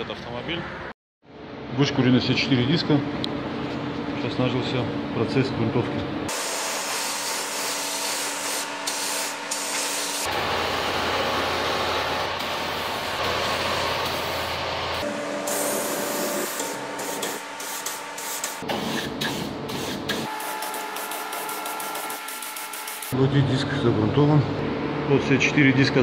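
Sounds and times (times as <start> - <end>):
spray gun hissing: 6.3 - 10.3, 12.4 - 23.2.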